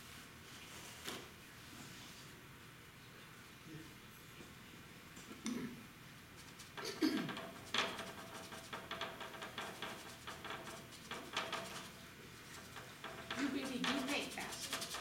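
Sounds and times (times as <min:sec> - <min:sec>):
paintbrush scratchy strokes: 0:06.4 - 0:15.0.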